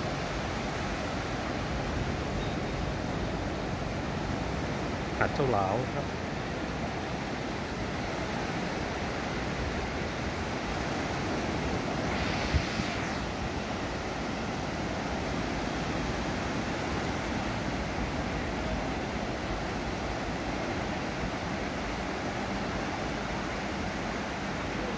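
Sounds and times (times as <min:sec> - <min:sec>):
sea surf washing on beach: 0:00.0 - 0:24.9
wind on microphone: 0:09.4 - 0:16.0.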